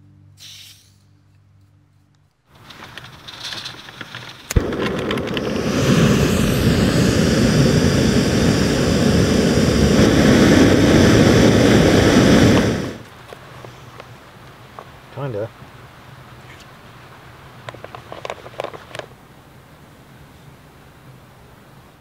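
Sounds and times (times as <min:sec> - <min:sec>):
gas hiss: 0:00.4 - 0:01.0, 0:04.5 - 0:13.1
gas burner flame rushing: 0:02.6 - 0:13.1
burner lighting pop: 0:03.9 - 0:08.3.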